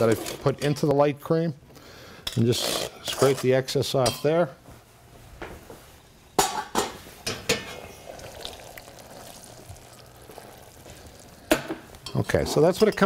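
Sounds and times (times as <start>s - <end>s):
faint steady noise: 0.0s - 13.0s
metal pots and utensils clinking: 2.3s - 4.4s, 6.4s - 8.6s, 11.5s - 13.0s.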